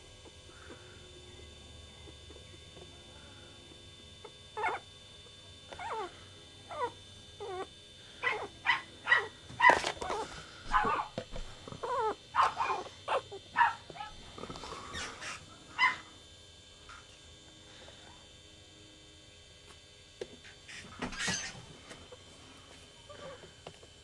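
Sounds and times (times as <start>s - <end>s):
puppies yelping and whimpering: 4.6s - 4.8s, 5.8s - 6.1s, 6.7s - 8.5s, 11.8s - 13.4s.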